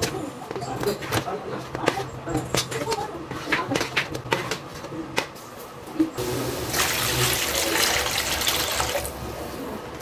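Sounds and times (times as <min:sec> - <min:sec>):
water hissing in hot wok: 0:06.2 - 0:09.0.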